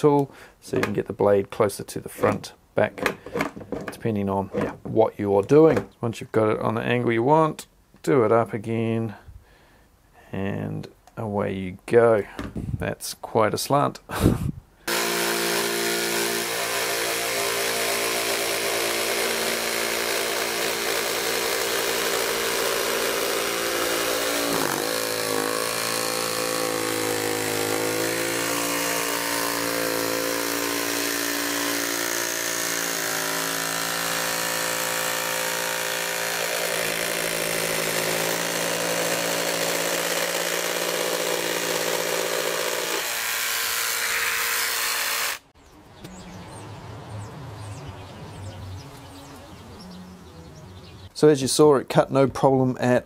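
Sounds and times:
jigsaw cutting wood: 0:14.9 - 0:45.5.

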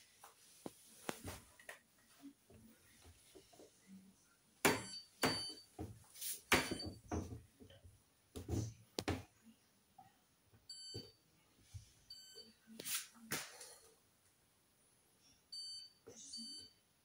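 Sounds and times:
washing machine electronic beeps: 0:04.7 - 0:05.8, 0:06.6 - 0:07.1, 0:10.7 - 0:11.2, 0:12.1 - 0:12.6, 0:15.5 - 0:16.8.

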